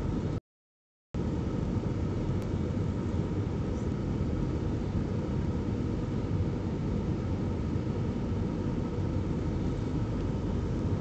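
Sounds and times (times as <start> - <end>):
airliner engines rumbling: 0.0 - 0.4, 1.2 - 11.0
faint steady hum: 0.0 - 0.4, 1.2 - 11.0.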